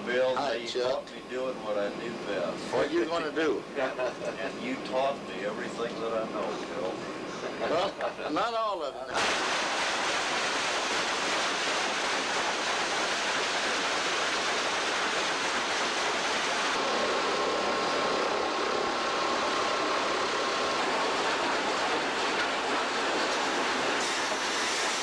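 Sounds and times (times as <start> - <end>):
log conveyor machinery hissing: 0.0 - 7.9, 9.1 - 25.0.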